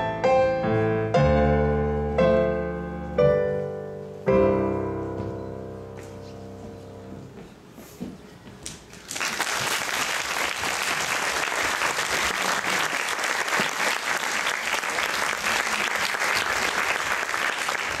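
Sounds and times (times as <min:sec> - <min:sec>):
keyboard notes: 0:00.0 - 0:07.6
audience applauding: 0:09.0 - 0:18.0.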